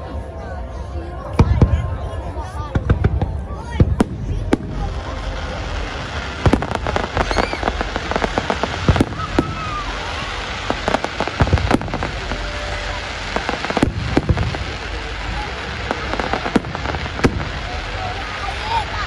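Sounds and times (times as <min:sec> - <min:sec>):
fireworks crackling: 0:01.3 - 0:19.0
firework shells bursting: 0:05.8 - 0:18.2.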